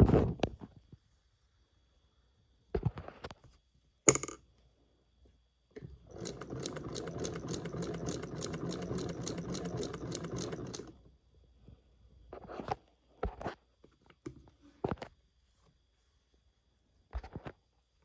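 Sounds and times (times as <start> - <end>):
sewing machine stitching: 6.0 - 11.0.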